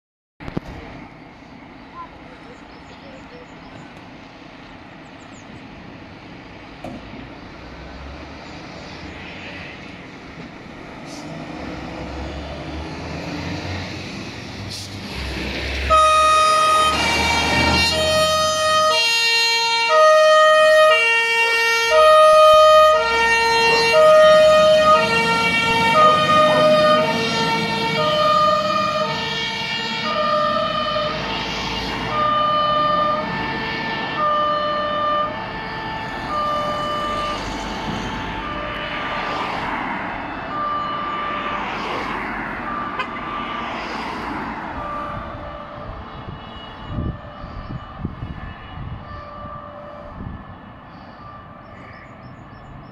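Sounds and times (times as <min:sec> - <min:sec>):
fire engine rumble: 0:00.4 - 0:43.7
two-tone siren: 0:15.7 - 0:51.7.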